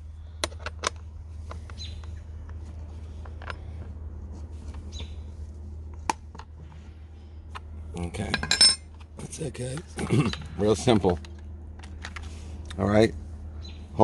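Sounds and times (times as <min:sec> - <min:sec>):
steady low hum: 0:00.0 - 0:14.0
bird chirping: 0:01.7 - 0:02.3, 0:04.8 - 0:05.3, 0:13.6 - 0:14.0.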